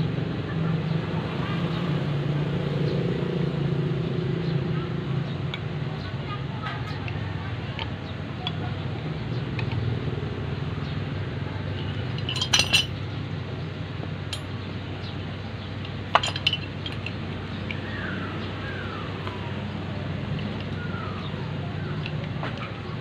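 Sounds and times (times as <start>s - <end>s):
metal wrenches clinking: 11.7s - 13.0s, 14.3s - 14.5s, 15.8s - 17.2s.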